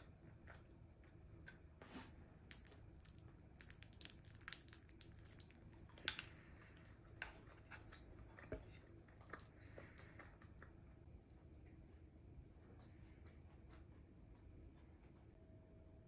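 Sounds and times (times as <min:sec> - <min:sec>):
croissant crust crackling: 0:01.9 - 0:09.5.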